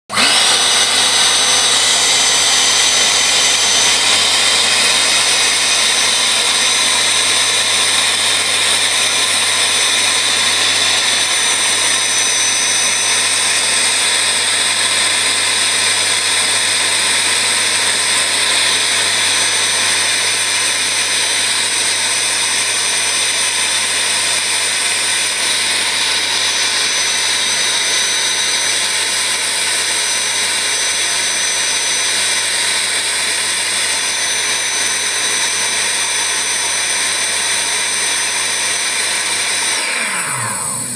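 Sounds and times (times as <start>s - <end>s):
vacuum pump running: 0.1s - 40.9s.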